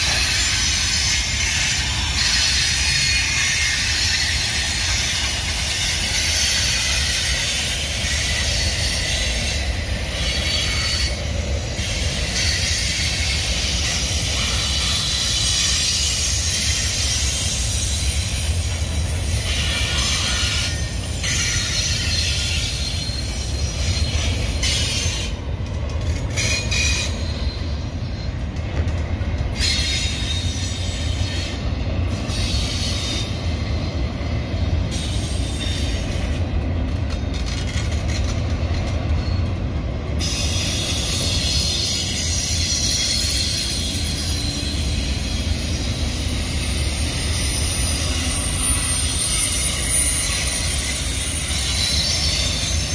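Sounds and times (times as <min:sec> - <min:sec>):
wheel squeal: 0:00.0 - 0:25.4, 0:26.1 - 0:28.4, 0:29.5 - 0:31.6, 0:37.3 - 0:39.6, 0:40.2 - 0:52.9
train wheels rumbling on rail: 0:00.0 - 0:52.9.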